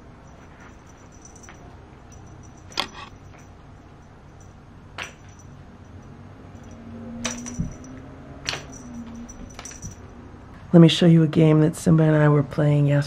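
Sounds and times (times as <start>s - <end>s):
cat toy jingling: 0.2s - 10.2s.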